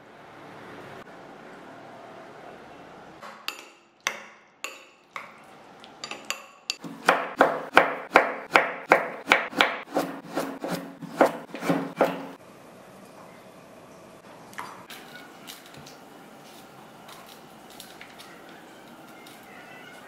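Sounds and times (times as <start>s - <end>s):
knife chopping on wooden board: 6.8s - 12.4s.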